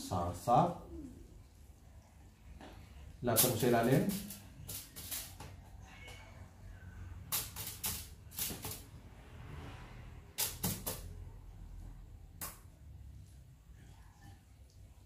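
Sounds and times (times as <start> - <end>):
faint low hum: 0.0 - 3.4, 5.4 - 7.3, 11.1 - 15.0
aluminium foil crinkling: 3.3 - 5.4.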